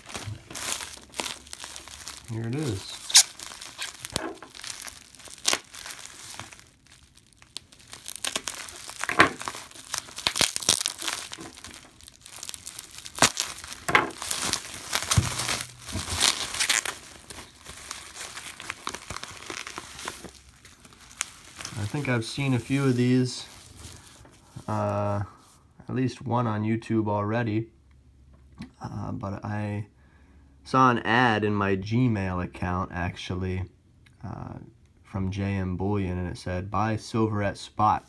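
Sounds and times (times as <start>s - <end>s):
bubble wrap crinkling and crackling: 0.0s - 25.6s.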